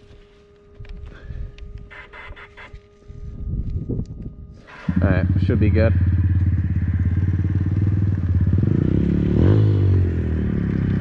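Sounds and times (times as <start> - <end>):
small motorbike engine idling: 4.6 - 11.0.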